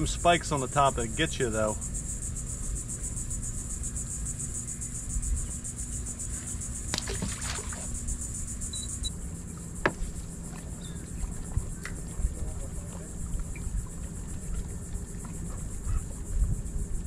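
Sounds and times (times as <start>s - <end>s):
water and wind rumble: 0.0s - 17.0s
high-pitched insect buzzing: 1.6s - 9.2s
small splash: 6.8s - 8.1s.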